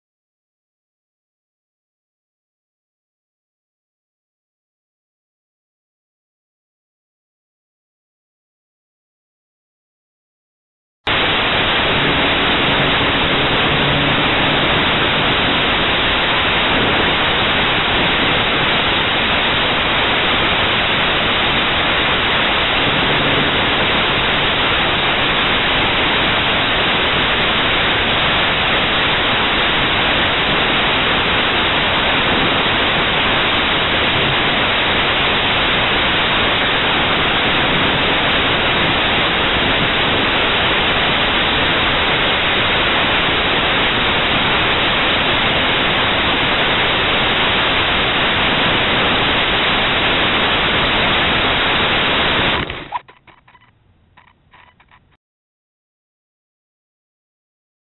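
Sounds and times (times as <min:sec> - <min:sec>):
static hiss: 0:11.1 - 0:55.1.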